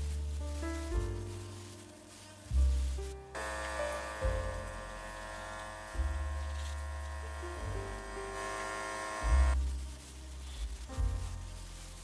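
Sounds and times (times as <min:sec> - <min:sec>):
steam cleaner hissing: 0:03.4 - 0:09.6.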